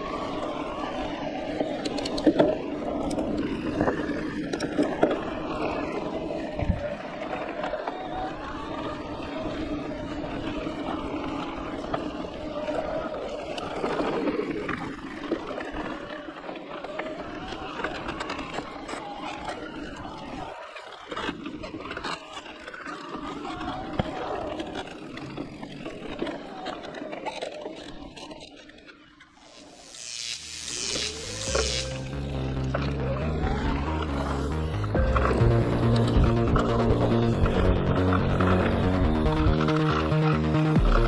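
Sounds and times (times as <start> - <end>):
electric motor hum: 29.4 - 41.0.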